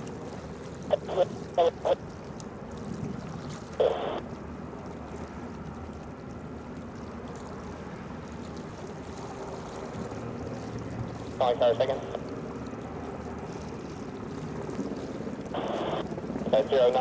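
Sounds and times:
ship rumble and hum: 0.0s - 17.0s
radio chatter: 0.9s - 2.0s, 3.8s - 4.2s, 11.4s - 12.2s, 15.6s - 17.0s.

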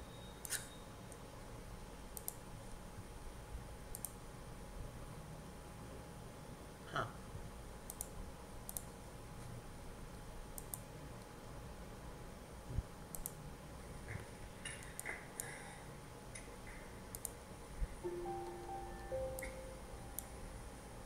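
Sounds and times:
mouse and keyboard clicks: 0.4s - 0.7s, 16.4s - 17.4s.

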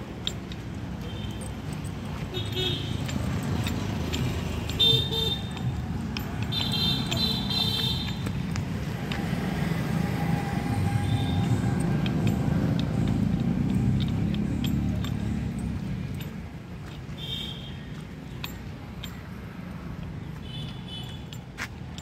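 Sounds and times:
road noise rumble: 0.0s - 22.0s
vehicle horn honking: 6.5s - 8.2s, 17.2s - 17.8s.

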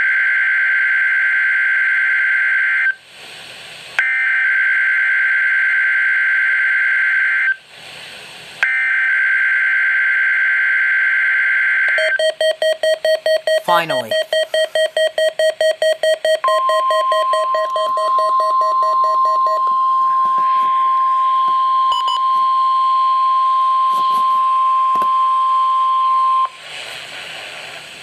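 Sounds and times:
steady warning alarm tone: 8.6s - 26.6s
radio beeping in rapid pulses: 11.9s - 22.8s.

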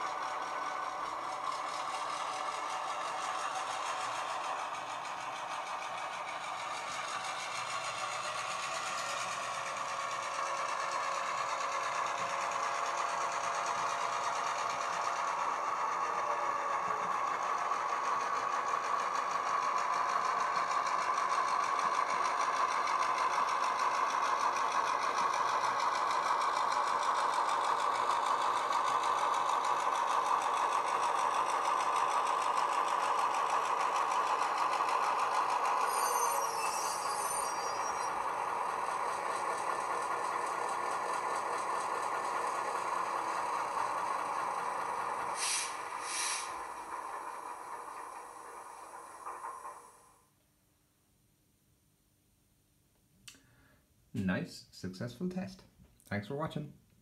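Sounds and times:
diesel engine drone from speaker: 12.9s - 18.0s
brief hiss: 45.4s - 46.6s.

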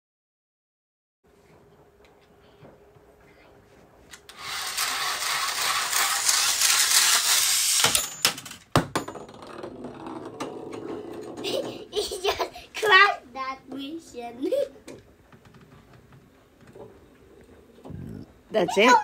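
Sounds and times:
toy whirring and rattling: 4.2s - 8.6s.

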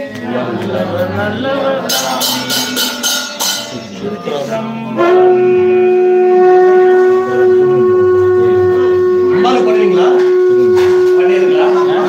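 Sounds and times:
sharp regular strikes: 1.8s - 4.3s
conch shell blown long note: 4.8s - 12.0s.

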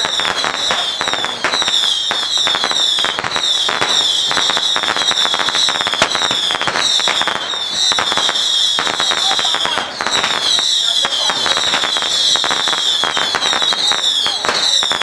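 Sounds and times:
firecrackers crackling: 0.0s - 15.0s.

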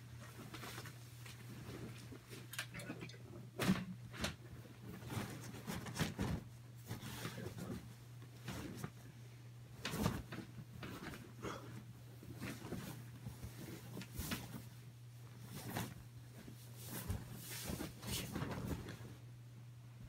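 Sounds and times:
low steady hum: 0.0s - 20.0s
fabric tunnel rustling: 4.0s - 19.4s.

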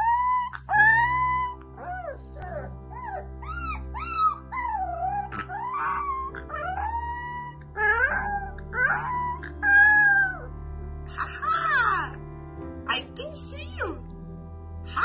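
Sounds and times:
puppies howling: 0.0s - 10.5s
puppies yelping: 0.0s - 10.5s.

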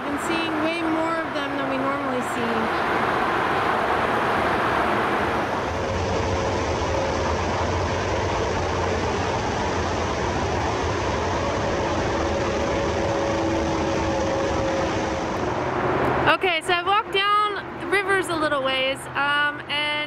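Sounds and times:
freeway traffic rush: 0.0s - 20.0s.

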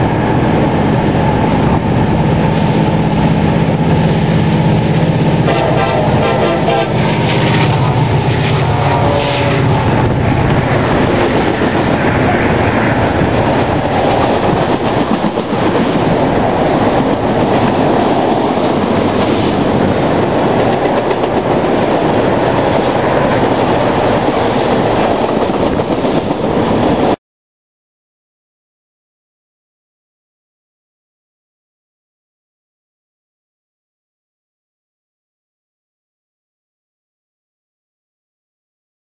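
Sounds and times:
train wheels rumbling on rails: 0.0s - 27.2s.

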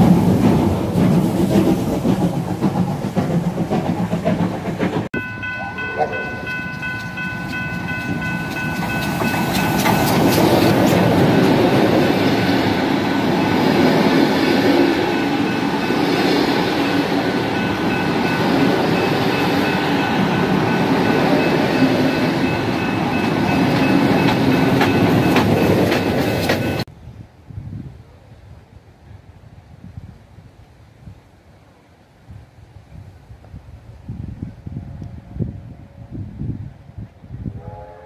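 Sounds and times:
train rumbling past: 0.0s - 26.9s
wheels clicking over rail joints: 0.0s - 26.9s
steam locomotive chime whistle: 5.2s - 26.9s, 37.5s - 38.0s.

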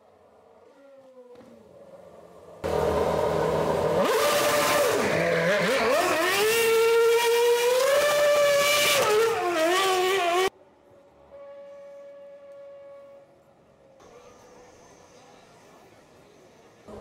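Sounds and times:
racing car engine at high revs: 2.4s - 10.5s.

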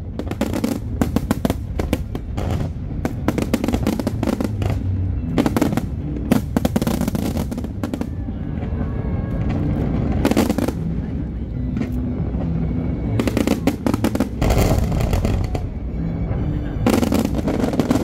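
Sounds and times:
fireworks bangs and crackles: 0.0s - 18.0s.

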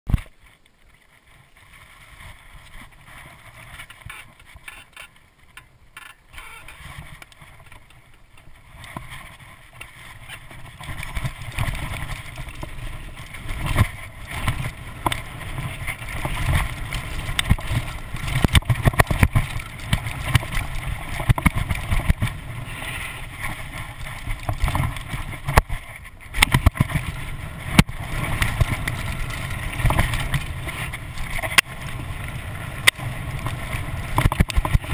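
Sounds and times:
tyres rolling on dirt: 0.1s - 34.9s
bike knocking and rattling: 2.1s - 34.9s
wind rushing over microphone: 8.6s - 34.9s.

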